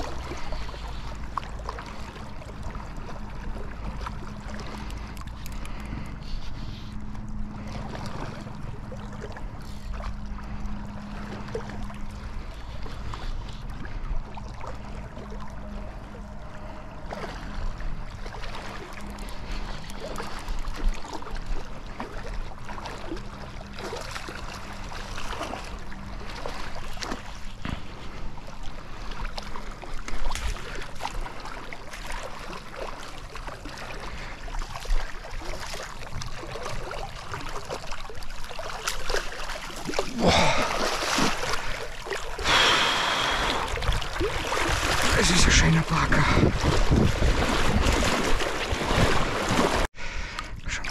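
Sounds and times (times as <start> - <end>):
river water rushing: 38.8 - 49.9.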